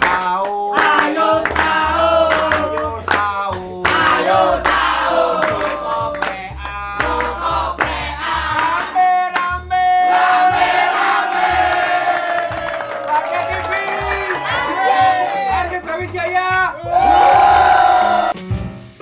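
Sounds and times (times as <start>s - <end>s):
group singing in unison: 0.0s - 9.4s, 10.0s - 12.8s
hand clapping: 0.0s - 10.5s, 11.3s - 16.2s.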